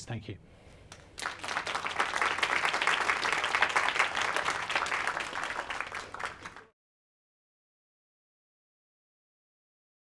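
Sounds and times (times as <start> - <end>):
audience applauding: 1.2 - 6.7.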